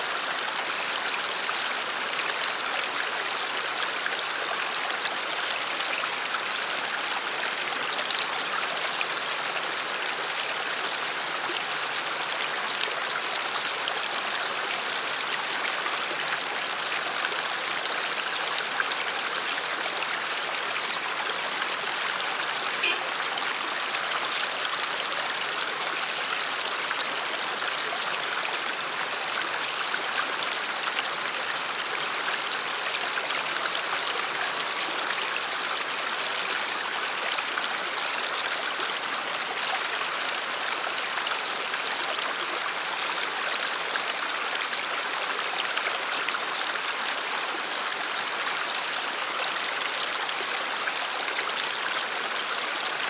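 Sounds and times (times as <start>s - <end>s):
stream rushing over rocks: 0.0s - 53.0s.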